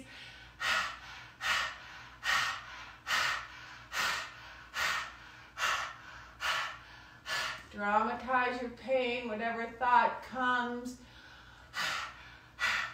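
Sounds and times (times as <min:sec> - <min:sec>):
woman breathing forcefully: 0:00.0 - 0:07.7, 0:11.0 - 0:12.9.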